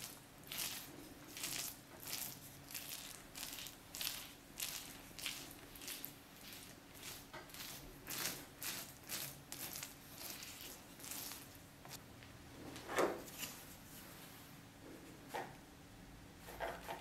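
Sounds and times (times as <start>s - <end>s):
spatula scraping filling on dough: 0.0s - 12.0s.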